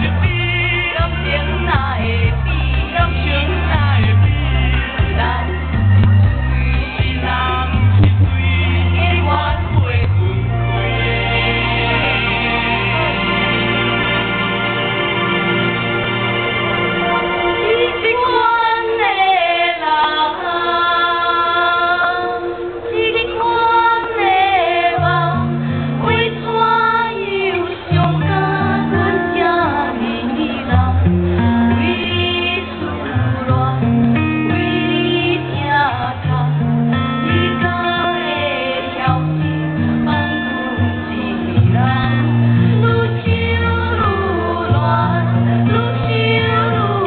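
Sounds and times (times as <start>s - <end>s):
bass line: 0.0s - 18.4s, 24.8s - 47.0s
women singing over amplified music: 0.0s - 47.0s.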